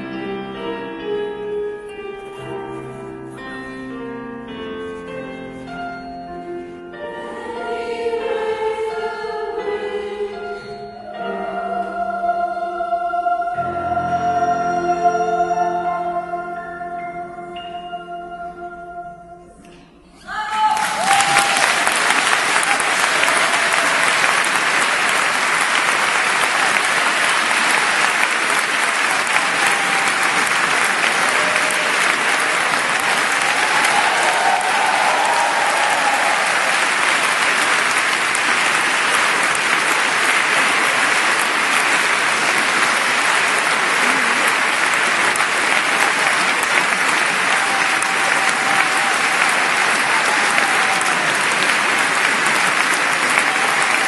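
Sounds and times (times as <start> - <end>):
audience applause: 20.5 - 54.0.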